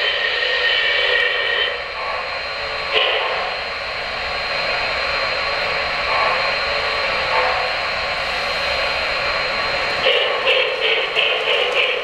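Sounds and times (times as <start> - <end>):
steam hiss: 0.0 - 4.9
steam locomotive chuffing: 0.0 - 12.0.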